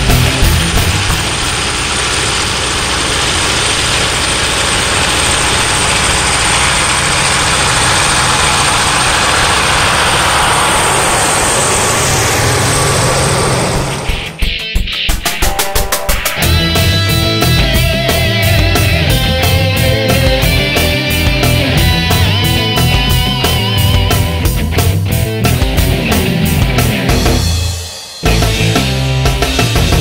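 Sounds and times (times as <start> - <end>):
diesel truck driving past: 0.0 - 14.5.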